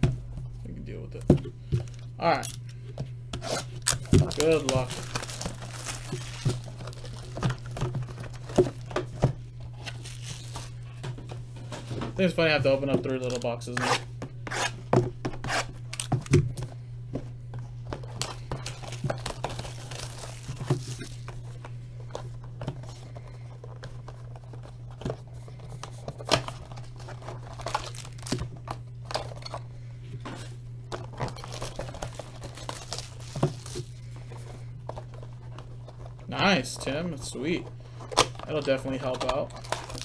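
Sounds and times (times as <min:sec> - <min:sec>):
packaging crinkling and tearing: 0:03.4 - 0:09.0, 0:09.6 - 0:11.0, 0:15.5 - 0:16.4, 0:18.0 - 0:23.0, 0:25.6 - 0:29.4, 0:30.9 - 0:36.7, 0:38.0 - 0:40.0.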